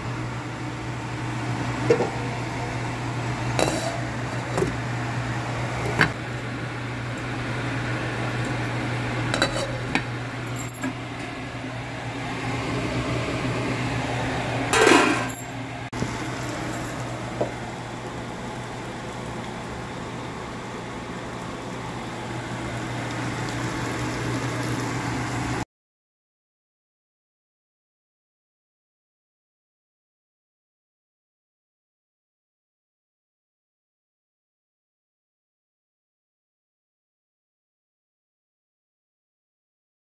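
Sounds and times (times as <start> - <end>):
pot lid clinking on pot: 3.6 - 4.7, 9.3 - 9.8.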